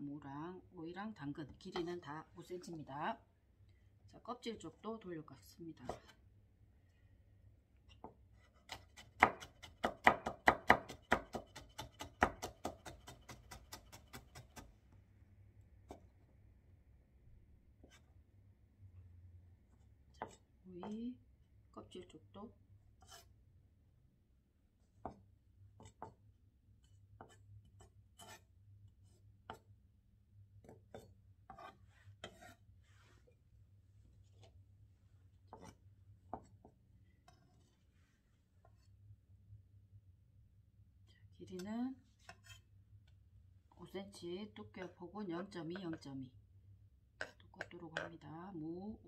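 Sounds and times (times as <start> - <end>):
knife scraping on board: 17.8 - 18.1, 23.0 - 23.3, 25.8 - 26.2, 26.8 - 29.7, 30.6 - 33.4, 35.5 - 35.8, 37.2 - 37.8, 42.2 - 42.7.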